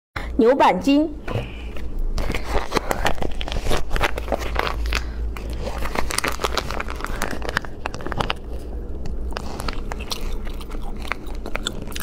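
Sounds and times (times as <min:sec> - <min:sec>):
plastic pouch crinkling: 0:02.2 - 0:11.9.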